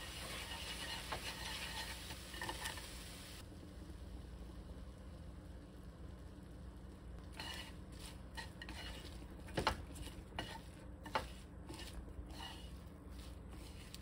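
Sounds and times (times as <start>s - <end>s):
chopsticks tossing food in pan: 0.0s - 2.9s, 7.3s - 14.0s.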